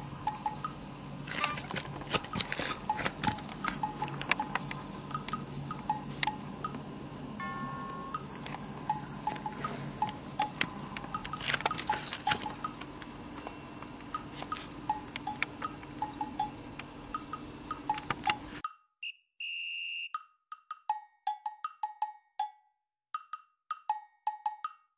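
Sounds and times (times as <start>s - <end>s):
insects chirring: 0.0s - 18.6s
light percussive music: 0.2s - 18.8s, 20.2s - 22.6s, 23.2s - 24.9s.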